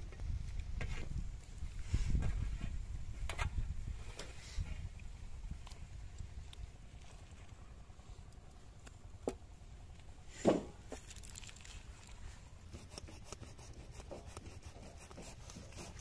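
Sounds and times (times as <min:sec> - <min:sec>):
knife cutting on wooden block: 0:12.8 - 0:16.0.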